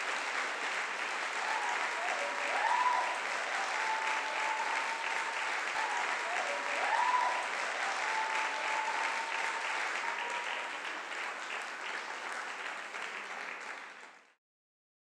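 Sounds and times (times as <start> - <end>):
audience applauding: 0.0 - 14.4
long held cheer: 1.2 - 11.2.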